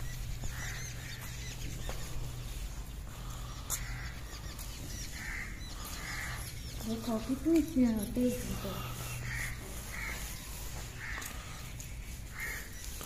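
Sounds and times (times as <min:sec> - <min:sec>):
birds chirping: 0:00.0 - 0:13.0
hoarse bird calls: 0:00.0 - 0:13.0
low steady hum: 0:00.0 - 0:13.0.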